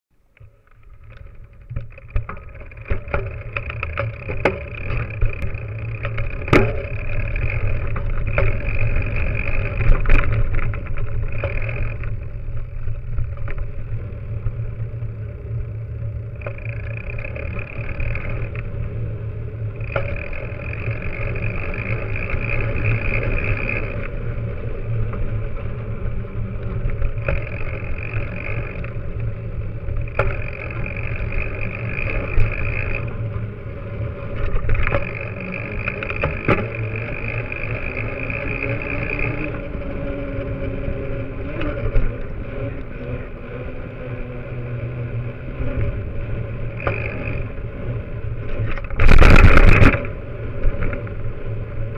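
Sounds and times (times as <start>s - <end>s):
bike tyre rolling on road: 0.1s - 51.9s
bike clicks and knocks: 0.3s - 44.1s, 45.3s - 51.9s
wind rumble: 0.3s - 51.9s
high whirring: 1.0s - 51.9s.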